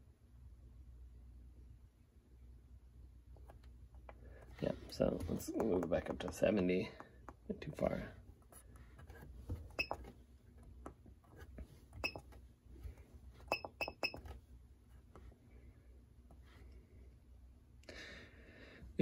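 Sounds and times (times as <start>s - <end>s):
short high keypad beeps: 12.0s - 12.2s, 13.5s - 14.2s.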